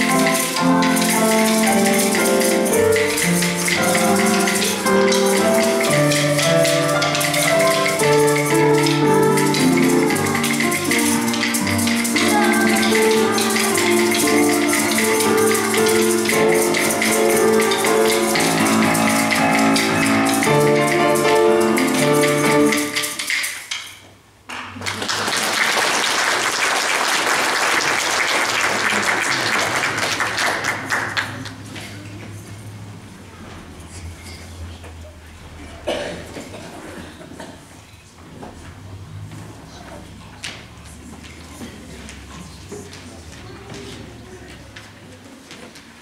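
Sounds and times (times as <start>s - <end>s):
piano music with percussion beat: 0.0s - 24.2s
congregation applauding: 24.5s - 31.6s.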